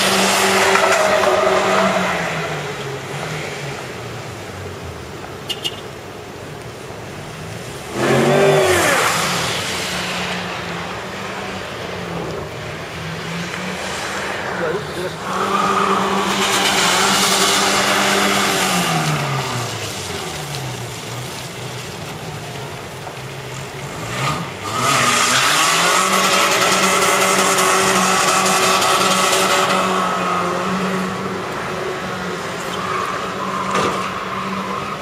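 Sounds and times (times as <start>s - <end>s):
tyres spinning and water spray: 0.0s - 35.0s
engine revving high: 7.8s - 20.1s, 23.8s - 32.3s.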